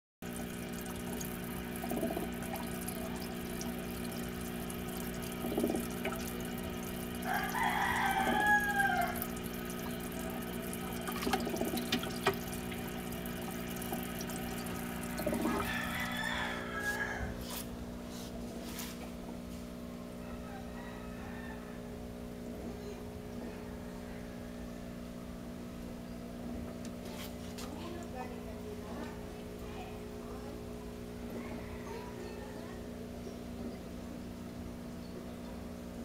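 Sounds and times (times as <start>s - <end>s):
water splashes: 0.2s - 16.2s
aquarium air pump hum: 0.2s - 36.0s
long animal calls: 7.2s - 9.4s.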